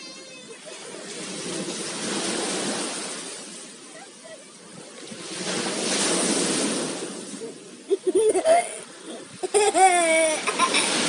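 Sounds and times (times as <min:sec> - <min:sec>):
surf washing in: 0:00.0 - 0:11.0
young child laughing: 0:07.9 - 0:11.0.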